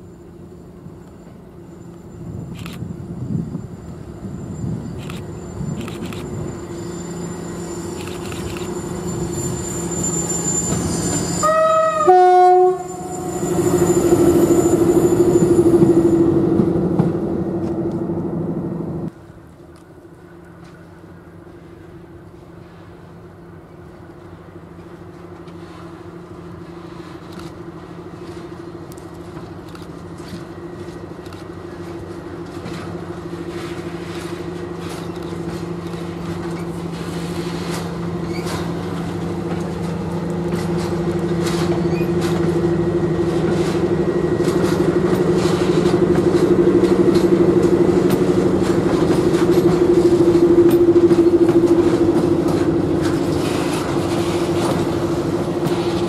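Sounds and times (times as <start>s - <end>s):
diesel locomotive engine drone: 0.0s - 56.0s
wheels clicking on rails: 28.2s - 56.0s.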